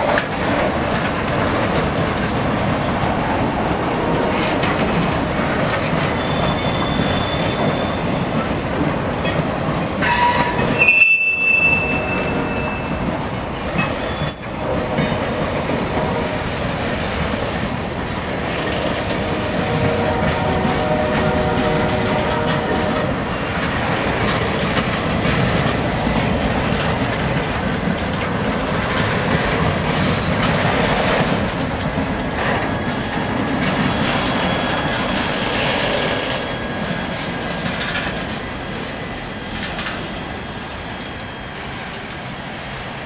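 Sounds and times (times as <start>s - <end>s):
train wheels clattering over rails: 0.0s - 43.0s
high-pitched wheel squeals: 6.0s - 8.3s, 10.0s - 13.1s, 13.9s - 14.9s, 22.3s - 23.9s, 33.8s - 40.2s.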